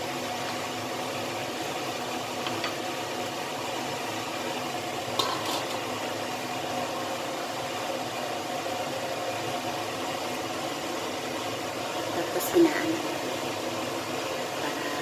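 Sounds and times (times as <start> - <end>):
sauce bubbling in a wok: 0.0 - 15.0
metal lid clinking on wok: 5.2 - 5.8.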